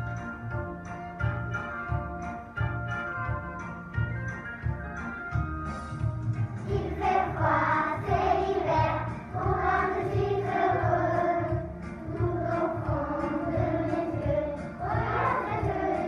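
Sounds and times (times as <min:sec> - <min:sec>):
backing track with steady beat: 0:00.0 - 0:16.0
children's choir singing: 0:06.6 - 0:16.0.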